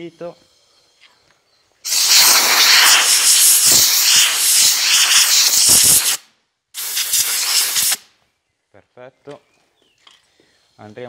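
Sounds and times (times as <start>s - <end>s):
air blow gun hissing: 1.8s - 8.1s.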